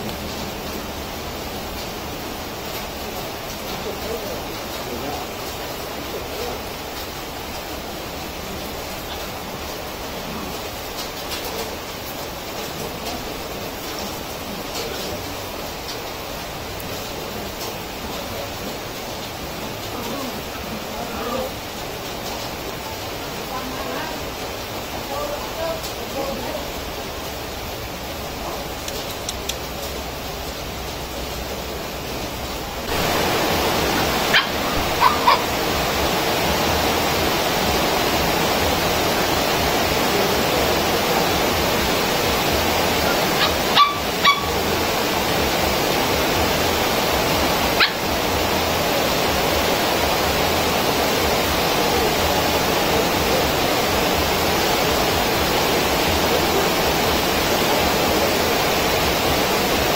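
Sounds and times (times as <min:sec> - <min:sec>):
steady rushing noise: 0:00.0 - 0:59.9
puppies yipping: 0:34.3 - 0:35.6, 0:43.3 - 0:44.6, 0:47.8 - 0:48.1.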